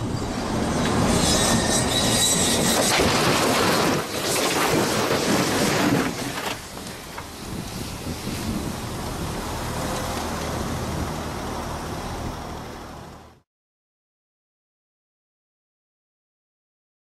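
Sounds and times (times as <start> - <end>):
truck engine and rolling noise: 0.0 - 13.4
truck crashing into barrier: 2.6 - 6.8
metal debris clattering and scraping: 2.6 - 7.1.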